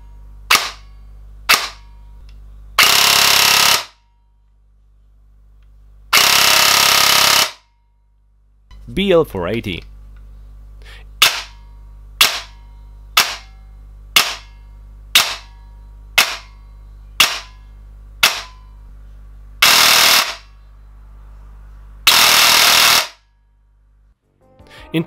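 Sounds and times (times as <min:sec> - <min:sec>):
airsoft rifle full-auto bursts: 0:02.8 - 0:04.0, 0:06.1 - 0:07.6, 0:19.6 - 0:20.5, 0:22.1 - 0:23.2
airsoft rifle single shots: 0:15.2 - 0:15.5.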